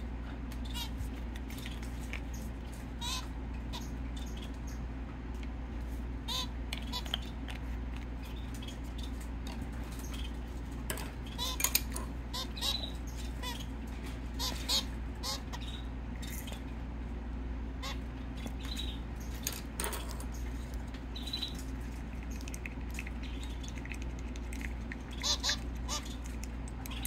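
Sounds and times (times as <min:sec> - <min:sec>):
steady low hum: 0:00.0 - 0:27.0
finch nasal calls: 0:25.1 - 0:26.3.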